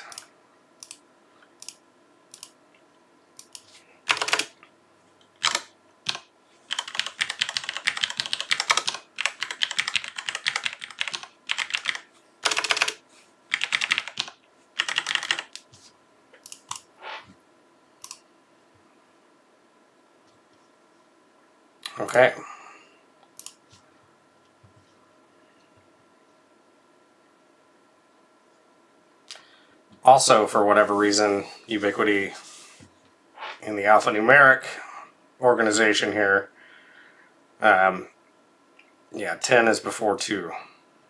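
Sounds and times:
keyboard typing clicks: 0:05.4 - 0:15.6.

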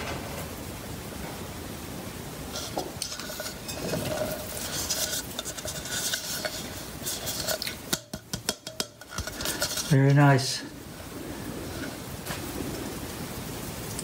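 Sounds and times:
fingers rubbing plastic cup: 0:02.6 - 0:07.8, 0:09.0 - 0:10.0.

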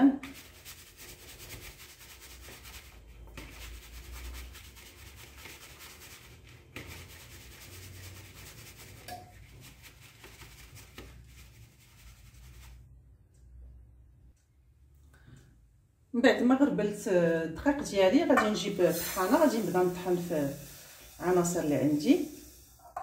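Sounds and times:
flour rustling through mesh sieve: 0:00.0 - 0:12.9, 0:18.8 - 0:22.4.

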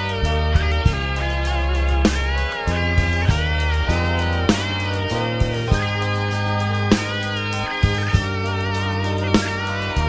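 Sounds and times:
electric guitar melody: 0:00.0 - 0:10.0
sustained bass: 0:00.0 - 0:10.0.

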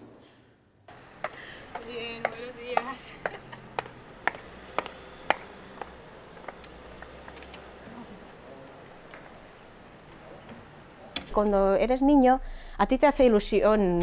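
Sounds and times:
heel clicks on pavement: 0:01.2 - 0:07.8.

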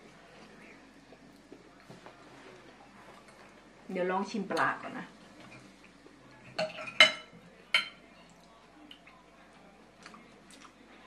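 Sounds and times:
cutlery clinking on ceramic plates: 0:06.5 - 0:08.0.

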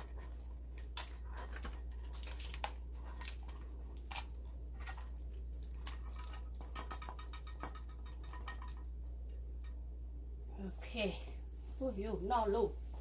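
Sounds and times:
wet squishes of food: 0:00.0 - 0:09.9
steady low hum: 0:00.0 - 0:13.0.

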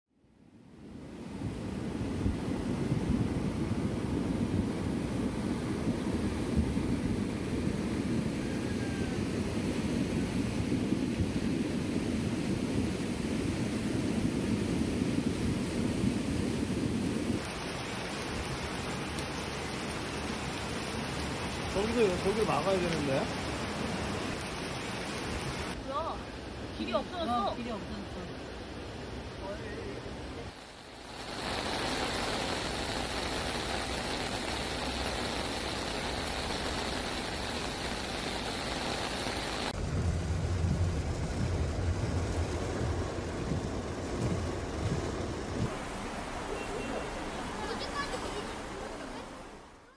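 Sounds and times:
floodwater rushing: 0:01.0 - 0:49.9
heavy rain falling: 0:01.4 - 0:27.8, 0:30.3 - 0:49.9
water gushing from storm drain: 0:17.4 - 0:25.8, 0:30.5 - 0:49.9.

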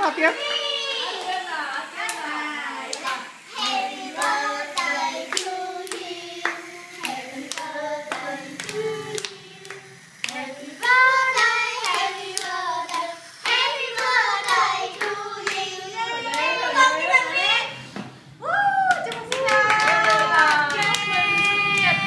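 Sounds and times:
women and children singing: 0:00.0 - 0:16.9
people clapping: 0:02.0 - 0:16.6, 0:18.8 - 0:22.0.

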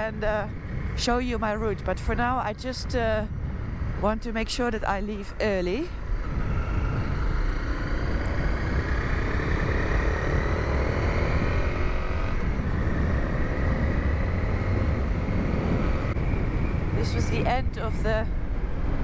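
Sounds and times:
motorcycle engine running: 0:05.9 - 0:16.7.

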